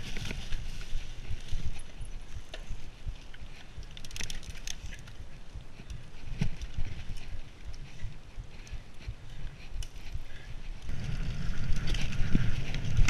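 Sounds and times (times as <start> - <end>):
bike rattles and clicks: 0.0 - 13.0
tyres rumbling on dirt: 10.9 - 13.0.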